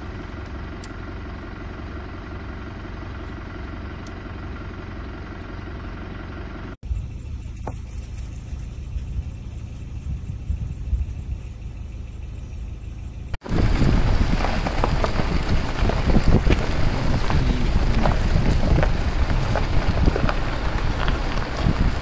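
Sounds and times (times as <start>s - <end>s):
vehicle engine rumbling: 0.0s - 22.0s
crackling noise: 13.4s - 22.0s.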